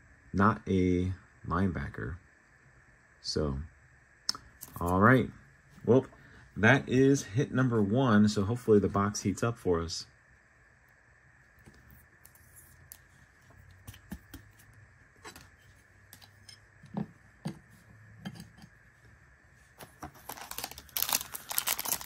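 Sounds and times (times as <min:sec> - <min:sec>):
foil card pack crinkling: 0:19.8 - 0:22.0.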